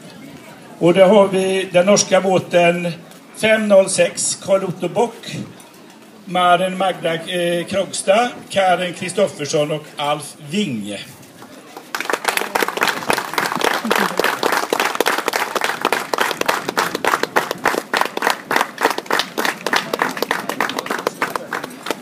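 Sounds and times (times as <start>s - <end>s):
crowd applauding: 11.7s - 22.0s.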